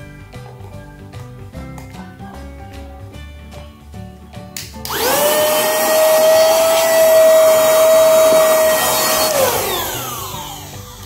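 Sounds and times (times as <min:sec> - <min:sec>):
handheld vacuum cleaner whine: 0:04.9 - 0:11.0.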